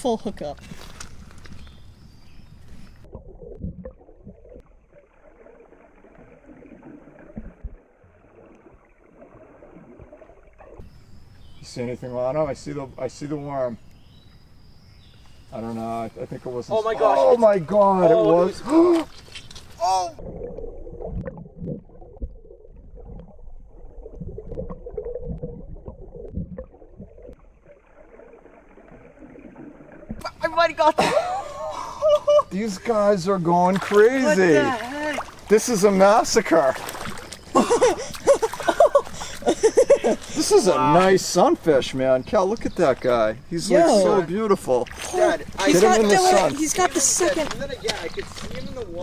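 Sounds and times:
water sloshing and gurgling: 0.0s - 11.6s, 16.3s - 32.0s, 32.6s - 49.0s
muffled water gurgling: 1.2s - 11.6s, 20.1s - 30.2s.

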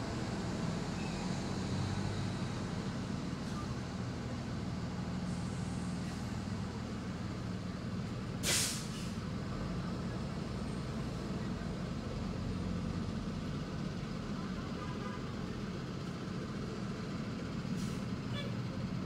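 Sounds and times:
bus engines running: 0.0s - 19.0s
air brake hiss: 8.4s - 9.2s, 17.7s - 18.1s.

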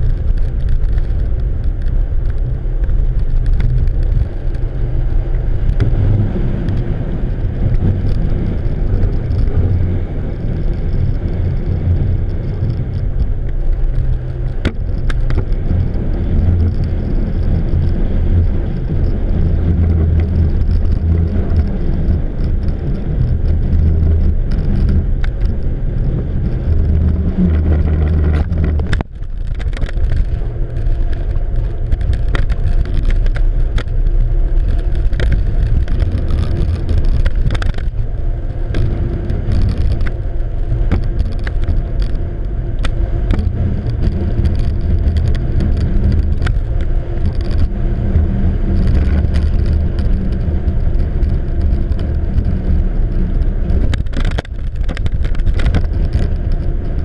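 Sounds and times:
outboard motors running: 0.0s - 57.0s
wind buffeting microphone: 0.0s - 57.0s.

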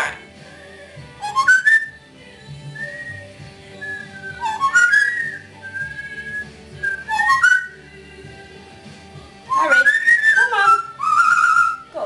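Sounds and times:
parrot whistling rising glides: 1.2s - 2.0s, 2.7s - 7.8s, 9.5s - 12.0s
soft held parrot whistles: 1.2s - 2.0s, 2.8s - 7.8s, 9.5s - 12.0s.

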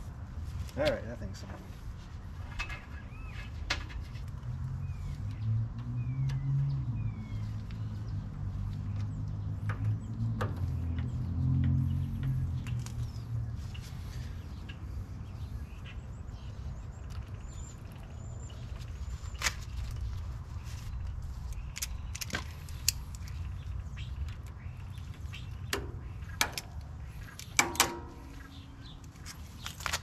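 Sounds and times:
steady low rumble: 6.8s - 29.8s.

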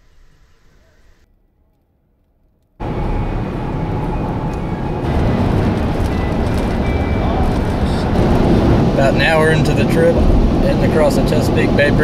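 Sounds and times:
truck road and wind noise: 2.8s - 12.0s.

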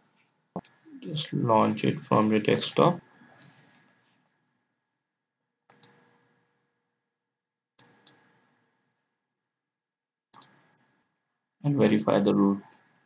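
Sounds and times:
computer mouse clicking: 5.7s - 6.0s, 10.3s - 10.6s.

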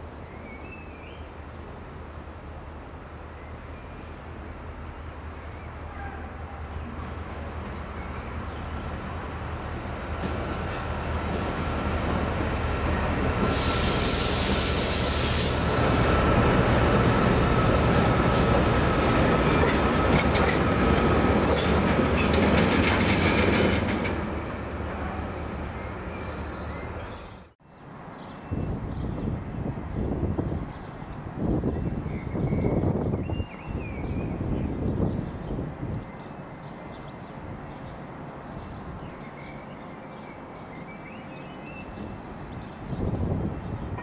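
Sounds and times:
diesel locomotive engines droning: 1.3s - 27.6s
loud hiss: 13.4s - 16.3s
wheels clicking over rail joints: 19.4s - 24.3s.

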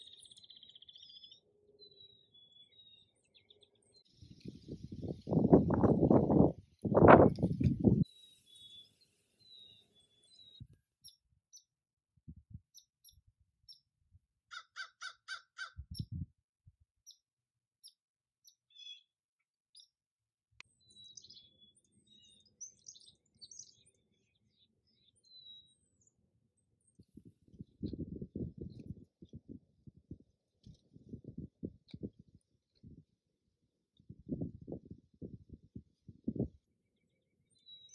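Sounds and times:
small birds chirping: 0.0s - 11.8s, 12.4s - 16.3s, 17.0s - 20.0s, 20.6s - 33.2s, 33.8s - 37.9s
crow cawing: 14.5s - 15.8s.

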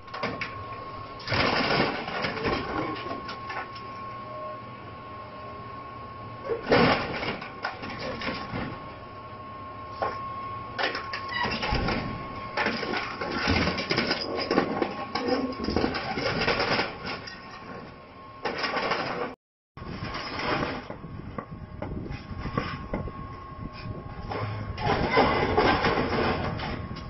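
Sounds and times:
metal crunching and clattering: 1.2s - 3.7s, 24.8s - 27.0s.

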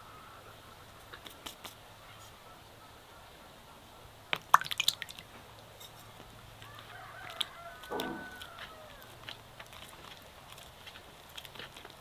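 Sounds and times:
eggs cracking: 4.4s - 5.3s.

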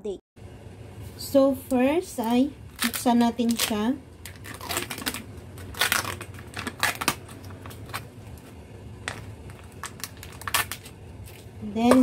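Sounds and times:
plastic film crinkling: 2.7s - 12.0s.

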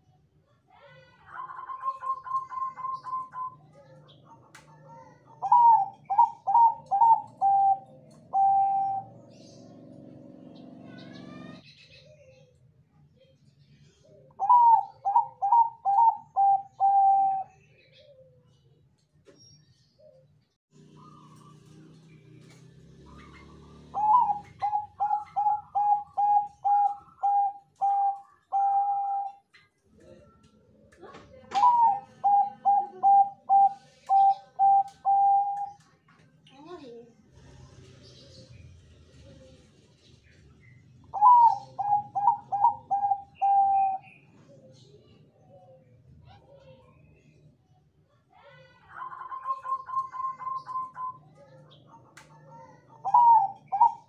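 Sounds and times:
dove cooing: 1.3s - 12.6s, 14.0s - 18.6s, 20.8s - 30.4s, 31.3s - 35.9s, 41.0s - 45.8s, 48.9s - 51.9s, 52.5s - 54.0s.

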